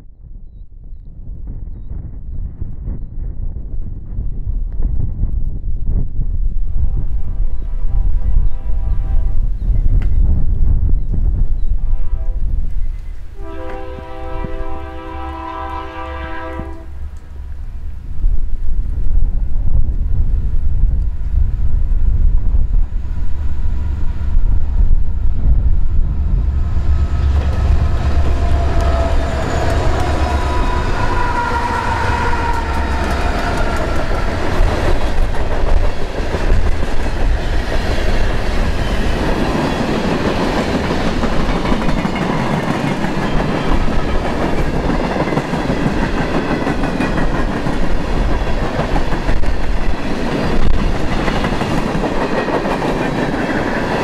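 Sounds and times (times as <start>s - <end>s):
freight train wheels clattering: 26.4s - 54.0s.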